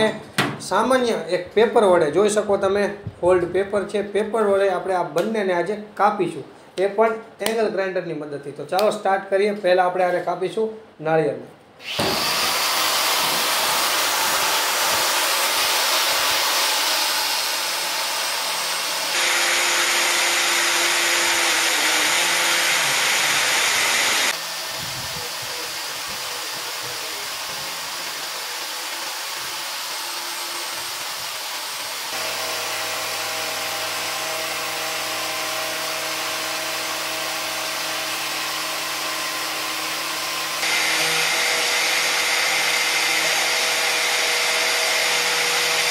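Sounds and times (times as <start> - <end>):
angle grinder grinding shell: 11.8 - 45.9.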